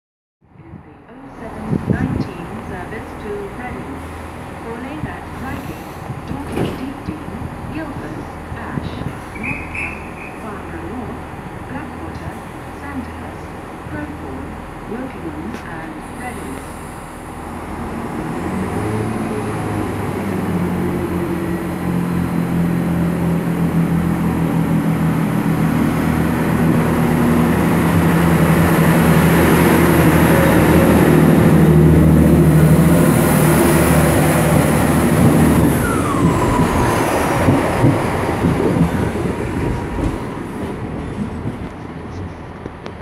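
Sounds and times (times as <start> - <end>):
diesel train engines under power: 0.4 - 43.0
falling engine whine: 9.4 - 41.0.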